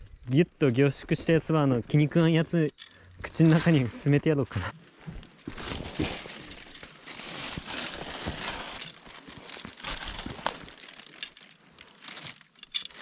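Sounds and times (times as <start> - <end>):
crinkling and rustling: 0.6 - 13.0
small clicks and clinks: 2.6 - 3.2, 11.1 - 13.0.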